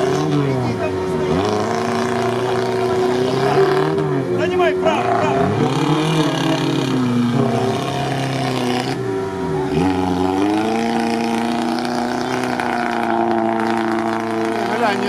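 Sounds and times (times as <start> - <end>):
off-road engines revving hard: 0.0 - 15.0.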